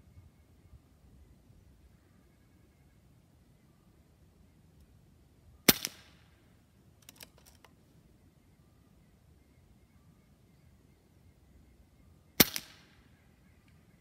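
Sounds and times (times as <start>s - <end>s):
air rifle lever clicks: 7.0s - 7.8s.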